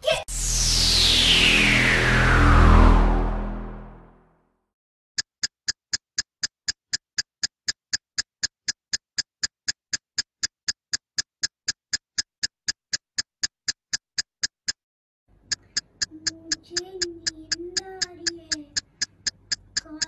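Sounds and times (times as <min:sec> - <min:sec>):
clock ticking: 0:05.2 - 0:20.0.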